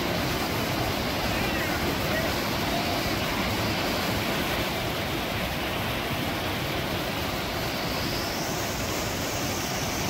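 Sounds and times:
creek water rushing over rocks: 0.0s - 10.0s.

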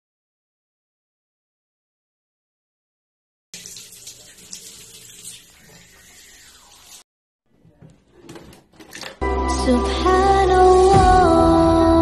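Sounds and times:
tap water running into sink: 3.6s - 7.0s.

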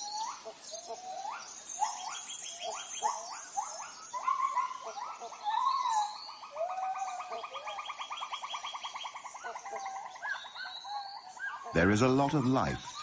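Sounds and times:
rising whistled animal calls: 0.0s - 13.0s.

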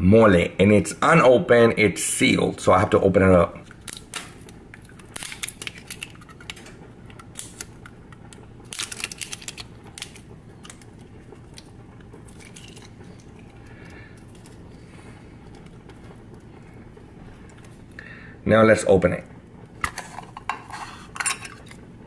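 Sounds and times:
faint low hum: 0.0s - 22.0s
plastic seal peeling crackles: 3.6s - 17.8s.

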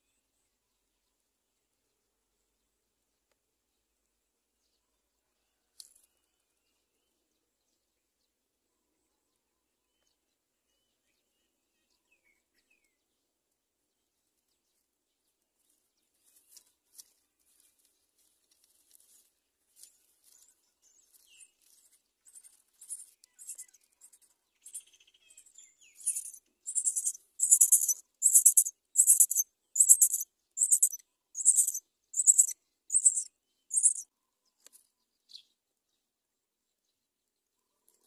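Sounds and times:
nestlings begging calls: 26.0s - 34.0s.

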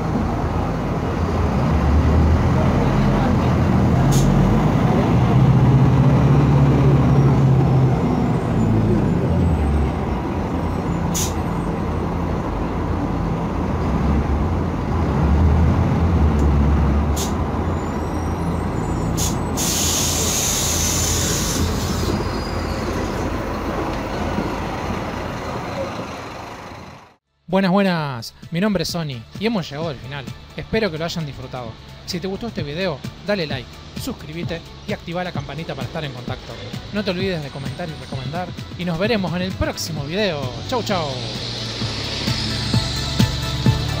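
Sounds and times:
bus diesel engine drone: 0.0s - 27.3s, 29.2s - 44.0s
compressed air hiss: 11.1s - 11.4s, 19.2s - 22.2s.

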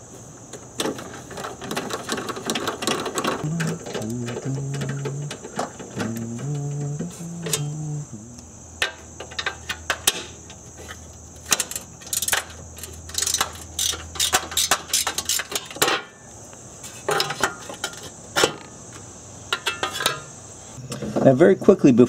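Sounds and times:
metal clinks and knocks: 0.8s - 7.9s.

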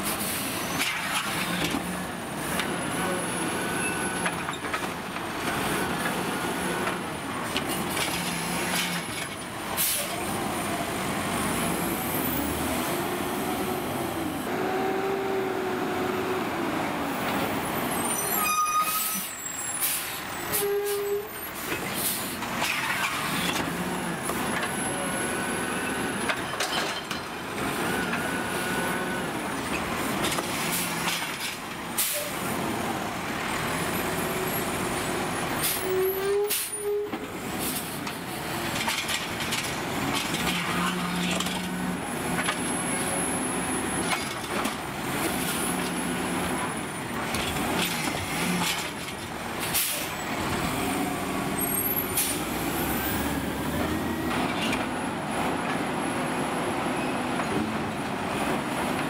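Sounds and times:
garbage truck diesel engine revving: 49.4s - 57.0s.

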